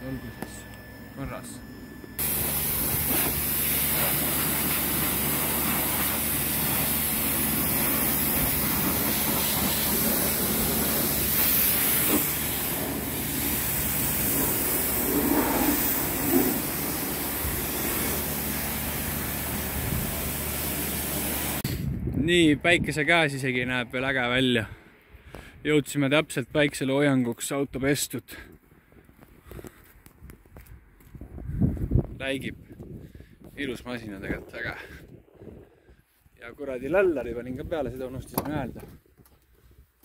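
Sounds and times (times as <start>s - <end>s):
low steady hum: 0.0s - 9.2s
pressure washer spraying water: 2.2s - 21.6s.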